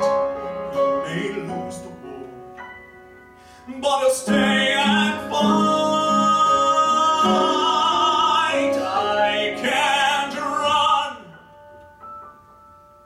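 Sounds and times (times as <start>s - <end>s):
piano accompaniment: 0.0s - 13.0s
man singing a ballad: 0.8s - 2.6s, 3.6s - 11.4s.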